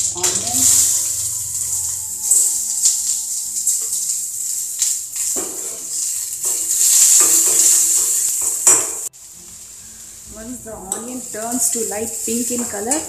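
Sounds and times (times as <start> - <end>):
spoon scraping metal pan: 0.0 - 9.1
onion sizzling in hot oil: 0.0 - 13.0.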